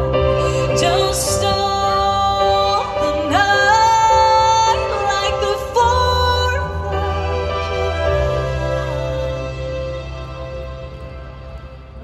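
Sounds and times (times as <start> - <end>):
woman singing pop ballad: 0.4 - 8.8.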